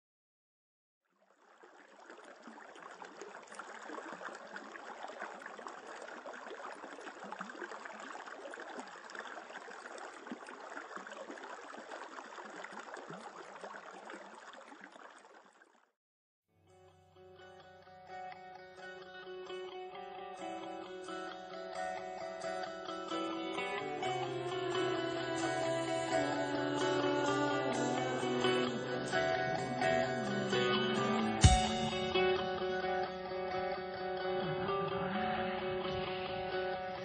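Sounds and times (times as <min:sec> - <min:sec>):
shallow stream babbling: 0:01.1 - 0:16.0, 0:17.8 - 0:37.0.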